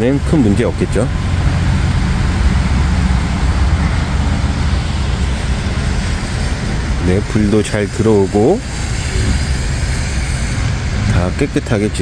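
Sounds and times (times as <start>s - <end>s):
road traffic hiss: 0.0s - 12.0s
vehicle engine rumble: 0.0s - 12.0s.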